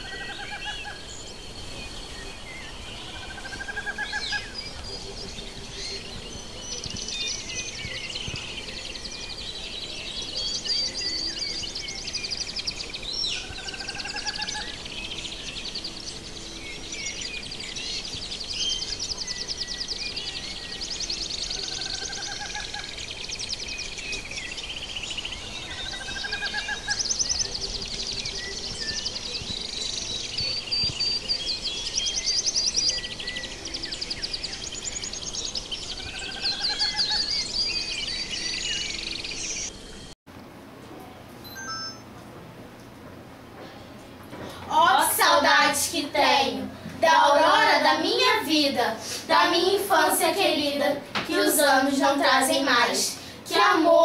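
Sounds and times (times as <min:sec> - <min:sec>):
rising whistled bird call: 0:00.0 - 0:39.7
birds singing and chirping: 0:00.0 - 0:40.2, 0:43.7 - 0:54.0.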